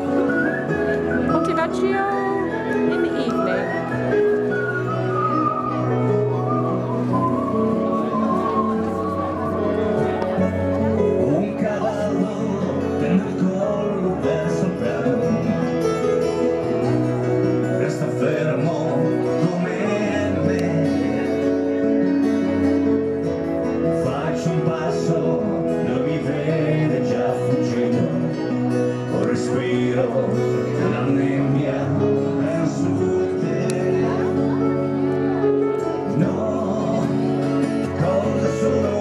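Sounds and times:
acoustic guitar: 0.0s - 39.0s
keyboard chords: 0.0s - 39.0s
person singing: 6.8s - 22.6s, 23.8s - 39.0s.

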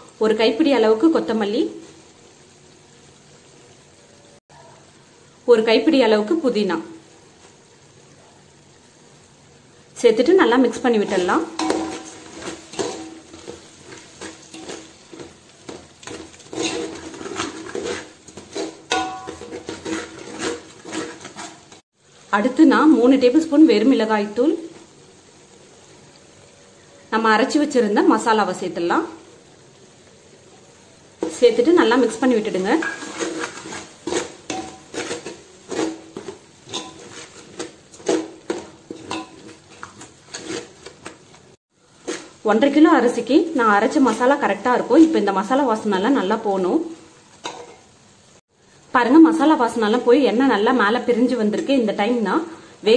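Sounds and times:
oil sizzling: 0.0s - 52.9s
steel spoon scraping a pot: 11.0s - 21.8s, 31.2s - 41.3s, 42.0s - 42.4s.

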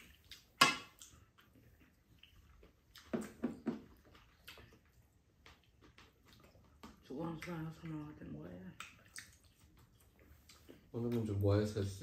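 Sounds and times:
sharp mouth eating sounds: 8.6s - 10.9s.

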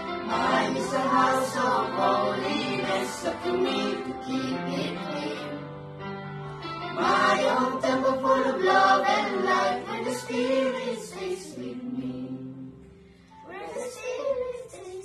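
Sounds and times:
children and adults singing: 0.2s - 5.7s, 6.9s - 12.9s.

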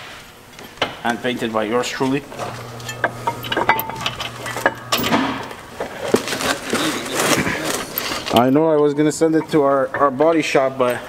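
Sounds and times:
low steady hum: 0.4s - 11.0s
metal clinks and knocks: 2.4s - 6.6s.

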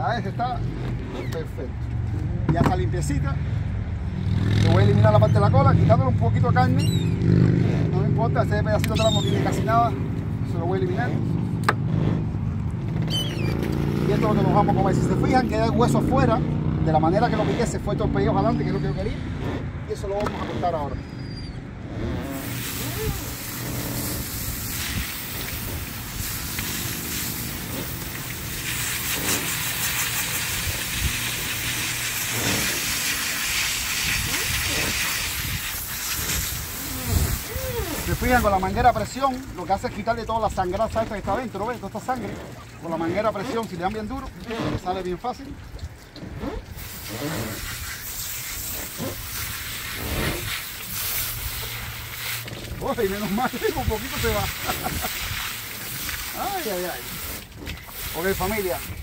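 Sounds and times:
pressure hose spraying water: 22.2s - 40.7s, 46.3s - 59.0s.

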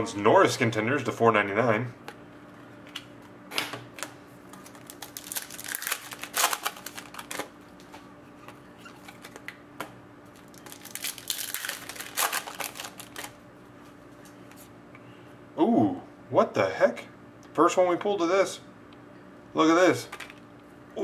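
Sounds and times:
cards being shuffled: 4.0s - 9.6s, 10.4s - 13.4s
foil pack crinkling: 4.5s - 7.6s, 10.3s - 13.4s.

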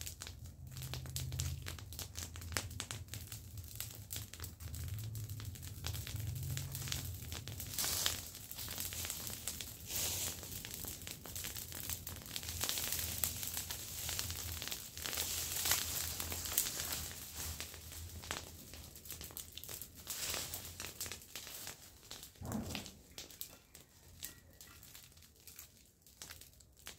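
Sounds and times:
dry branches rustling and crackling: 5.7s - 26.9s.

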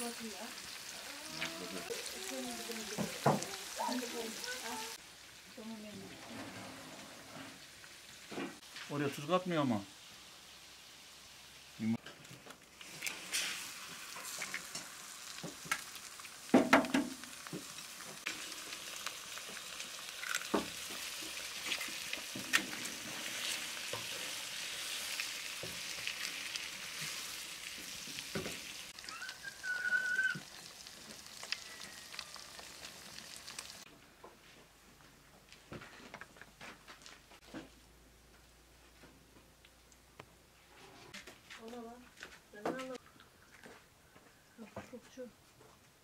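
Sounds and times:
eggs sizzling in a pan: 0.0s - 33.9s
wooden spoon scraping a pan: 20.4s - 28.8s.

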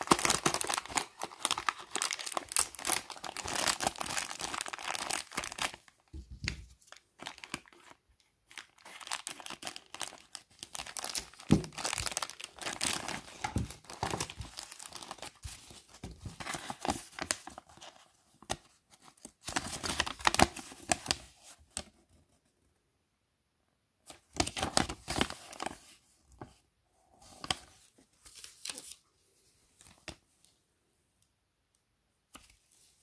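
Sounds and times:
plastic bags crinkling: 0.0s - 5.9s, 8.5s - 15.5s.

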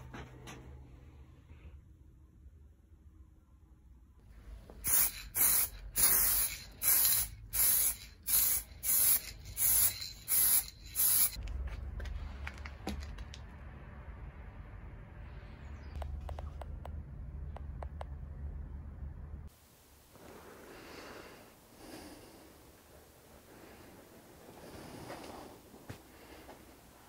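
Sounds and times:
low steady rumble: 0.0s - 20.9s
spray can hissing bursts: 4.8s - 11.4s.

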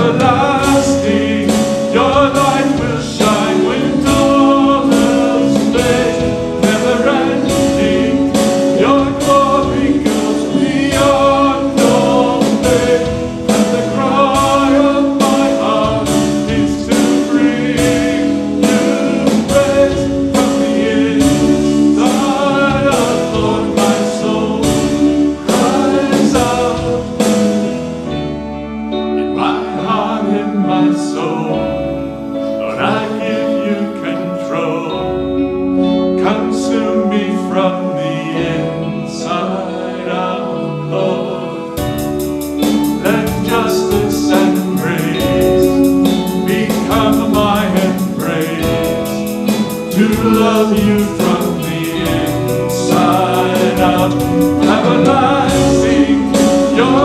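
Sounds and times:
instrumental accompaniment with bass: 0.0s - 57.0s
voices singing worship song: 0.0s - 57.0s
fast high ticking: 41.8s - 57.0s.

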